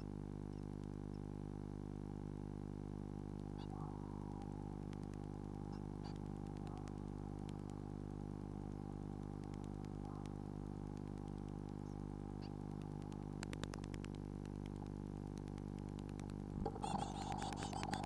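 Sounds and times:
steady electrical hum: 0.0s - 18.0s
clicks: 4.4s - 18.0s.

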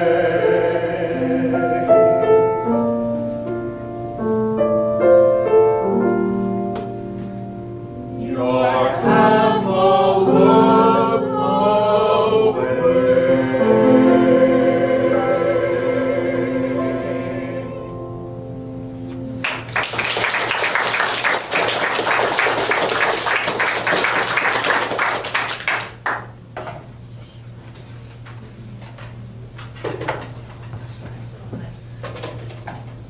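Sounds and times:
vocal quartet singing chord: 0.0s - 3.4s, 7.8s - 19.1s
audience applauding: 19.4s - 26.3s.

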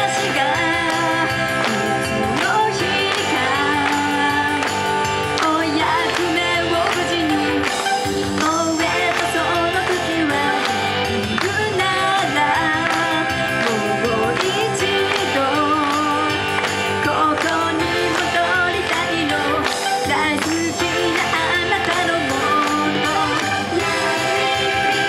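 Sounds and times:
pop backing track: 0.0s - 25.0s
girl singing into a microphone: 8.4s - 16.4s.

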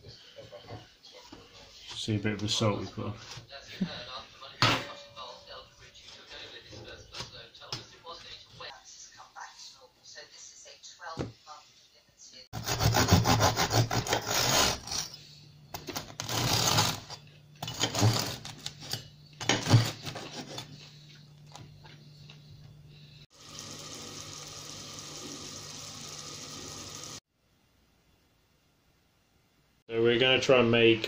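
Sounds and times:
knife sawing through bread: 12.6s - 15.2s, 16.2s - 17.1s.

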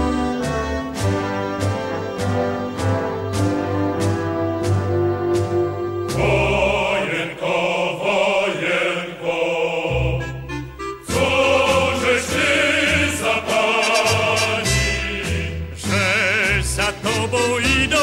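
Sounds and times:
instrumental accompaniment: 0.0s - 7.6s
choir singing with vibrato: 4.4s - 18.0s.

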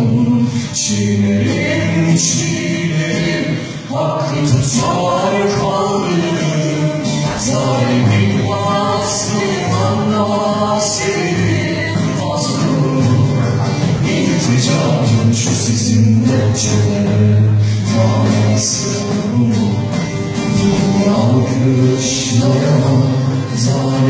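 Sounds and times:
choir singing: 0.0s - 24.0s.

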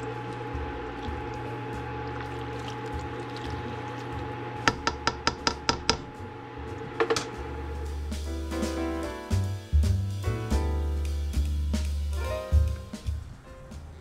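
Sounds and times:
steady low hum: 0.0s - 8.6s
spoon rapping on metal pot: 4.7s - 6.0s.

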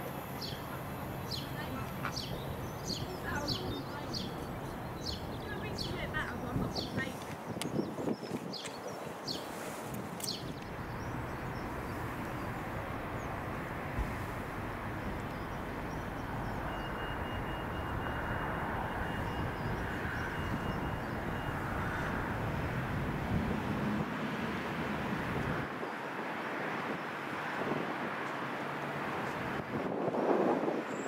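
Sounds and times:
diesel locomotive engine droning: 0.0s - 6.8s, 10.7s - 25.6s.

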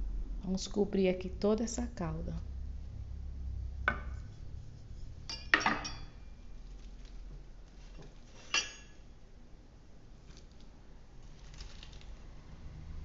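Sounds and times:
kitchenware clinking on metal pot: 5.3s - 6.2s, 8.4s - 9.0s.

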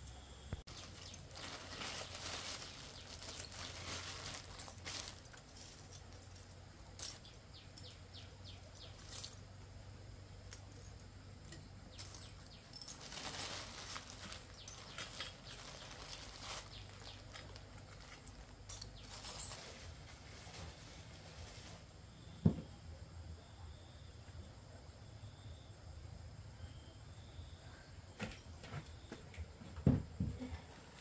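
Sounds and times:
faint scraping and rustling: 0.6s - 9.8s, 10.4s - 22.8s.

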